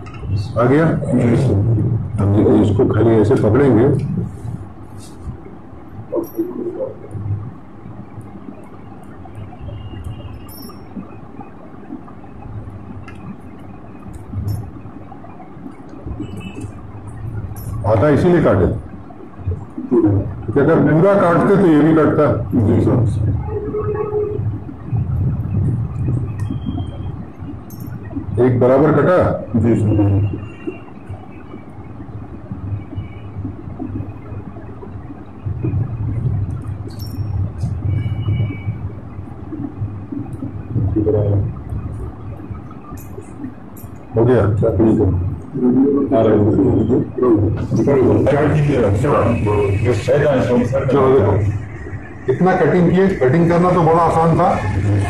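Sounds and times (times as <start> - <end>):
steady low hum: 0.0 - 55.0
wire strands clicking: 8.2 - 11.5, 12.6 - 17.8, 41.6 - 44.2.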